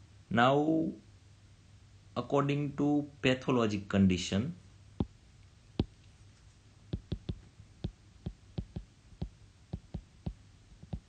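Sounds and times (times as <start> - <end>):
stylus tapping on glass screen: 5.8 - 6.0, 6.9 - 11.0.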